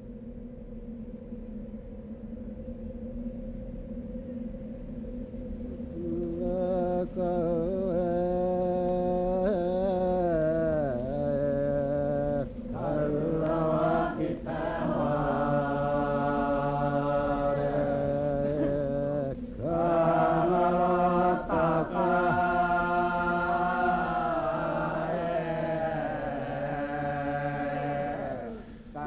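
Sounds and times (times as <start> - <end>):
low steady drone: 0.0 - 29.0
voices chanting: 5.8 - 29.0.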